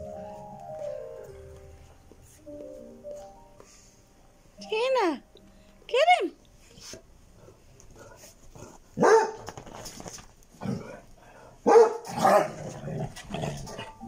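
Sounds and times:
dogs barking: 9.0 - 9.5, 11.6 - 12.8.

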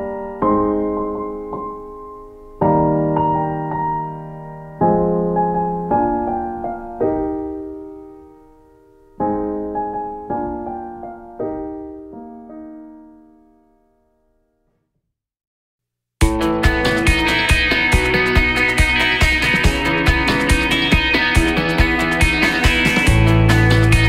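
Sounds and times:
slow piano chords: 0.0 - 14.4.

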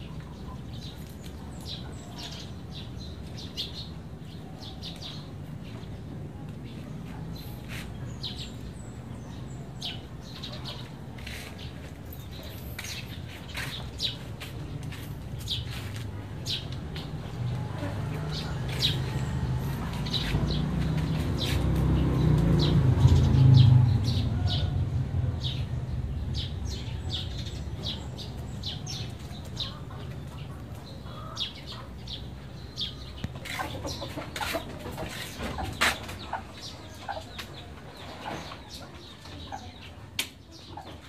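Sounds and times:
birds chirping: 0.0 - 41.0.

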